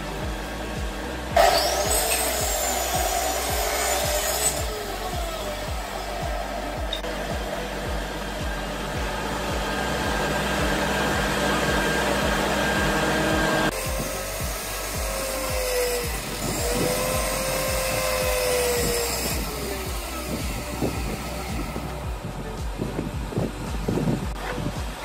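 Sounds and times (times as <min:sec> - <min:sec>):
background music with steady beat: 0:00.0 - 0:25.0
gliding pitched notes: 0:00.0 - 0:25.0
steady machine-like noise: 0:00.0 - 0:25.0.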